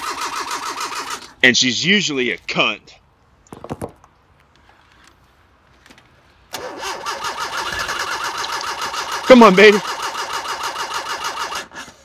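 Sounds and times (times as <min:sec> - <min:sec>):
starter cranking engine: 0:00.0 - 0:01.4, 0:06.5 - 0:12.0.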